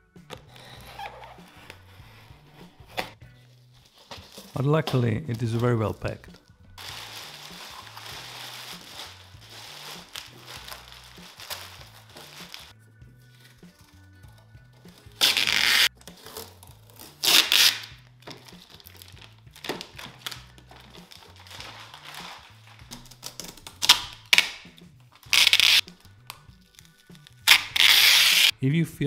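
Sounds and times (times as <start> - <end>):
quiet background music: 0.0 - 29.0
plastic wrap crinkling: 3.6 - 12.7, 15.1 - 24.5, 25.2 - 28.5
packing tape ripping: 6.8 - 12.7, 14.9 - 28.5.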